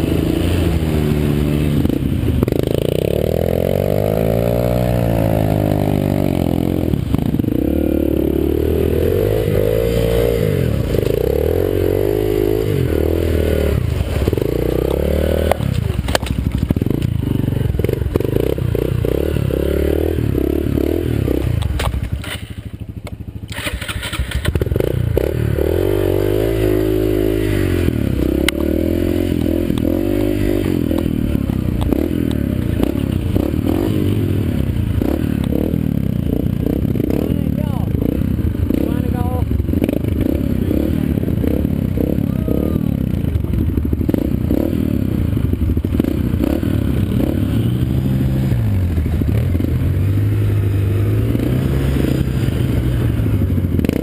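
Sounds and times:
dirt bike engine revving: 0.0 - 54.0
bike rattling and knocking: 14.2 - 19.2.

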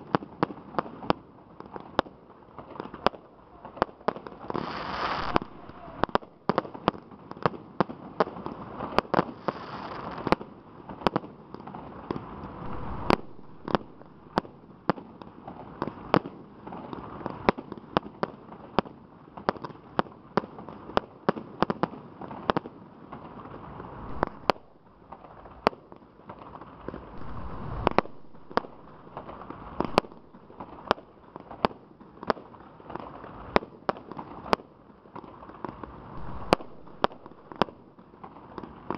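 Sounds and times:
continuous background noise: 0.0 - 38.9
fireworks launching and bursting: 0.0 - 38.9
sharp firework bangs: 2.7 - 7.0, 12.0 - 16.3, 23.6 - 31.8, 35.6 - 38.9.

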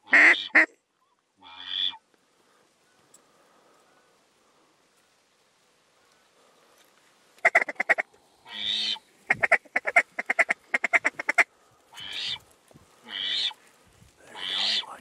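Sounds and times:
duck call quacks: 0.0 - 0.7, 7.4 - 12.4.

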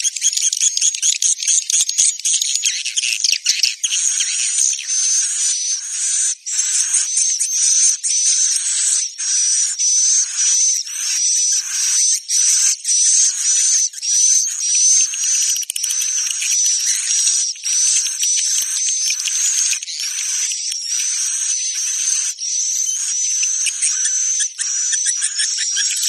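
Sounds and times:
high buzzy bird chirps: 2.5 - 26.0.

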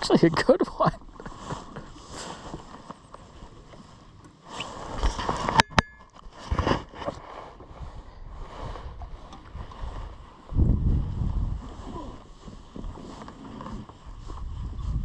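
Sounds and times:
handling and rustling noises: 11.6 - 14.8.

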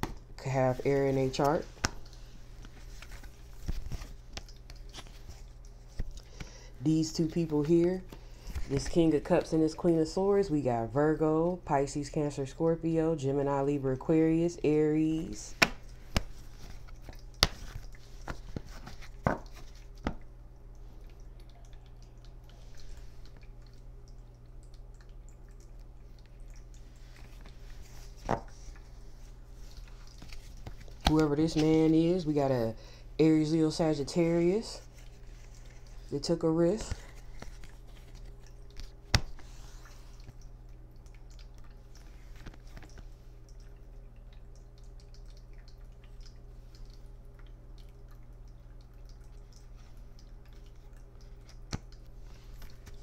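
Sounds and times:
low electrical hum: 0.0 - 53.0
cards tapping and clicking: 15.5 - 20.2, 30.2 - 31.7, 36.8 - 39.6.

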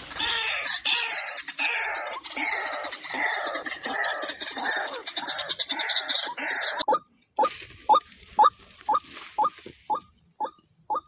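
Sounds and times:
waterhen croaking and calling: 0.0 - 11.0.

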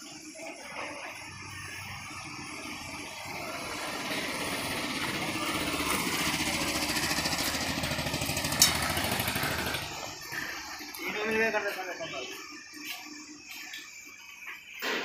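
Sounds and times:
power tool hammering rattle: 3.3 - 11.0.

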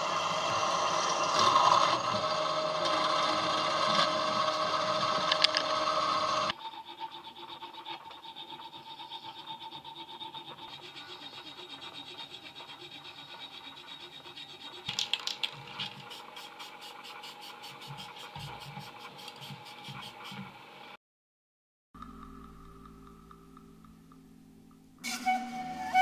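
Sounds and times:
hand file scraping metal: 0.9 - 20.6
metallic clicks and scrapes: 10.4 - 20.5.

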